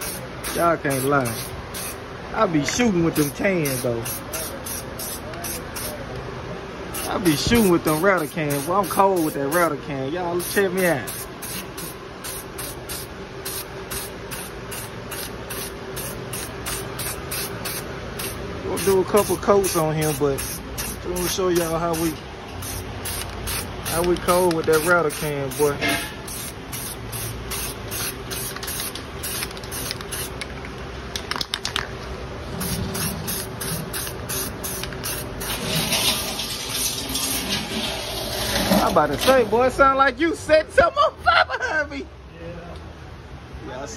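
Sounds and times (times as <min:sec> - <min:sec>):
spray can hissing: 0:00.0 - 0:02.0, 0:03.2 - 0:06.0, 0:07.0 - 0:09.7, 0:10.4 - 0:30.5, 0:32.6 - 0:38.3.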